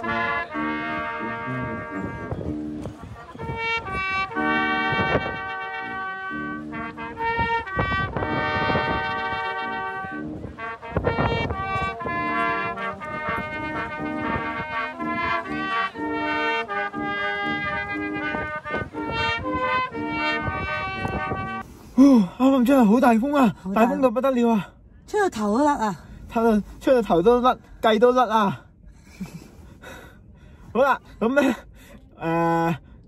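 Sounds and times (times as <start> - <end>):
brass band playing: 0.0 - 21.7
wind buffeting microphone: 0.0 - 21.8.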